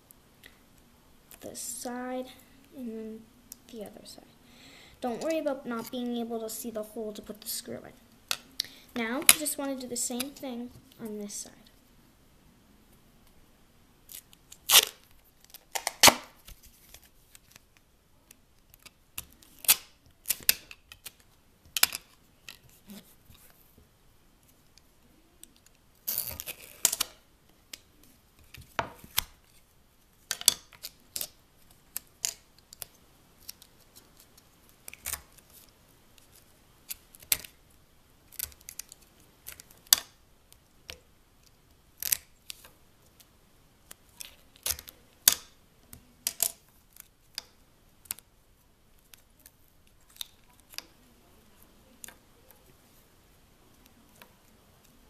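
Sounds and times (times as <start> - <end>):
tape crackling rustle: 14.1 - 23.8, 24.4 - 55.0.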